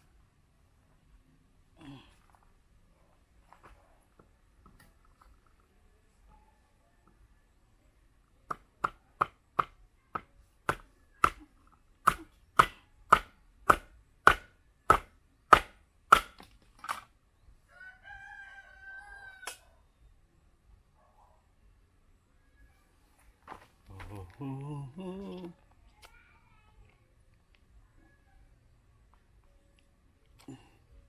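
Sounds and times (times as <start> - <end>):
knife chopping on wooden block: 12.1 - 16.4
rooster crowing: 17.7 - 19.7.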